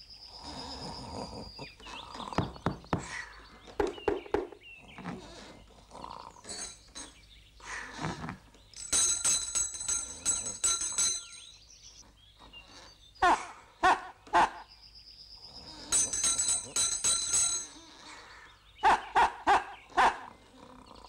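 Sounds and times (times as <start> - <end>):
knocks: 2.4 - 4.6
hand bell rung rapidly: 8.8 - 11.6, 15.7 - 17.9.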